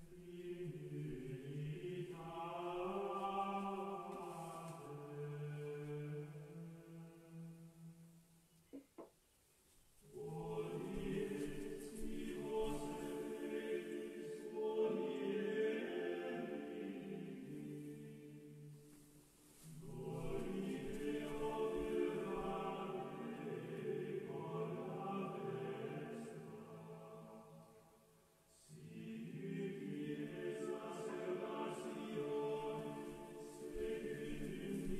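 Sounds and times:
choir singing held notes: 0:10.1 - 0:18.4, 0:19.7 - 0:27.2, 0:28.6 - 0:34.9.

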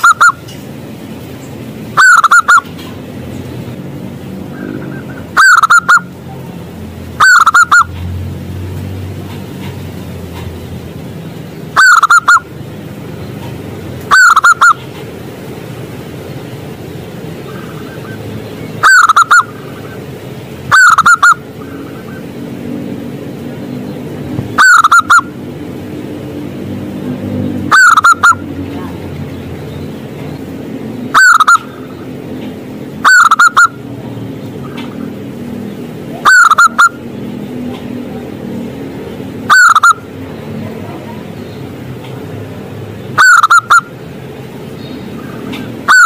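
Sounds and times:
dove cooing: 0:02.0 - 0:02.7, 0:04.6 - 0:06.1, 0:07.2 - 0:07.9, 0:11.8 - 0:12.4, 0:18.8 - 0:20.0, 0:20.7 - 0:22.2, 0:24.6 - 0:25.3, 0:27.7 - 0:28.4, 0:33.0 - 0:33.8, 0:36.2 - 0:37.0, 0:39.5 - 0:40.0, 0:43.2 - 0:43.9.

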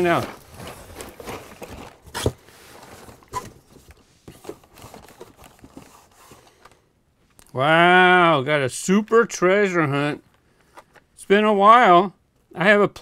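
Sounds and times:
plastic packaging clacks: 0:00.0 - 0:06.8
cardboard and plastic rustling: 0:00.0 - 0:06.9.

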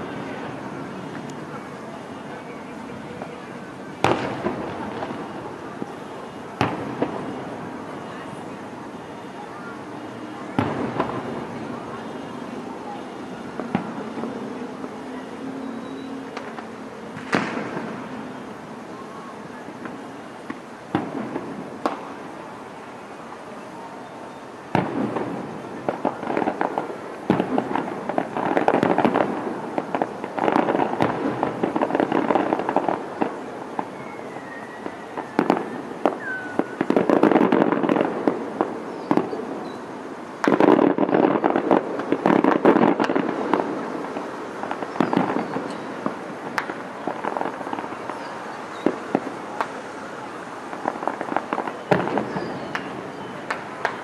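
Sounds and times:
fireworks crackling and popping: 0:00.0 - 0:54.0
firework shells bursting: 0:40.4 - 0:49.9.

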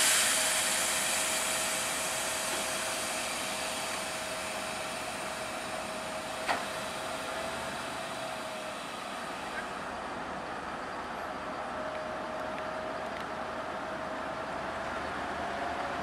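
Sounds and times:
compressed air hissing: 0:00.0 - 0:08.1.

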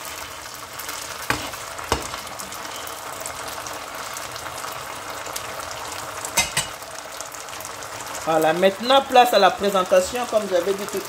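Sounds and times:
food sizzling in oil: 0:00.0 - 0:11.0.

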